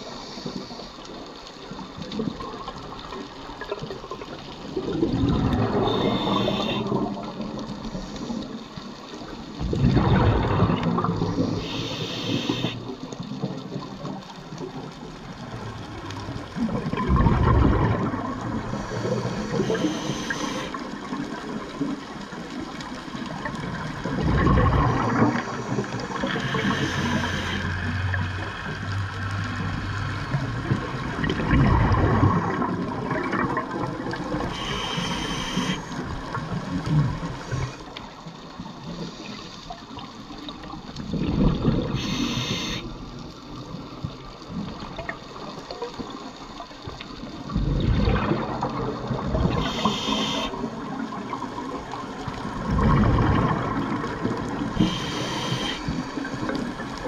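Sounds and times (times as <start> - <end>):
exhaled bubbles rushing underwater: 0.0 - 57.0
regulator hissing: 5.9 - 6.9, 11.5 - 12.8, 19.6 - 20.7, 26.4 - 27.7, 34.5 - 35.9, 42.0 - 42.8, 49.6 - 50.6, 54.8 - 56.0.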